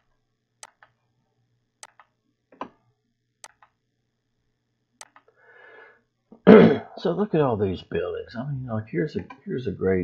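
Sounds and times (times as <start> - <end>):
computer mouse clicking: 0.0 - 1.0, 1.8 - 2.8, 3.4 - 3.8, 5.0 - 5.4.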